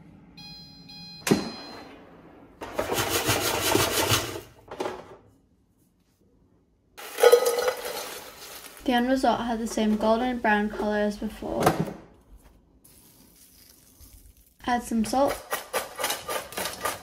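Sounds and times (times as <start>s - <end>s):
appliance beep: 0.2s - 2.3s
fries rattling in metal basket: 7.0s - 9.0s.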